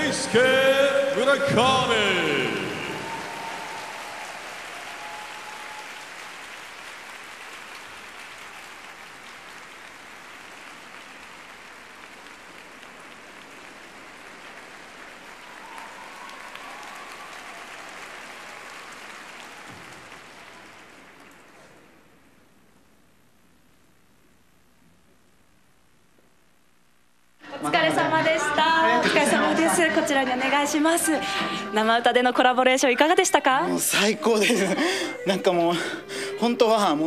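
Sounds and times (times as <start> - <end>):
audience applauding: 0.0 - 22.5, 33.1 - 37.0.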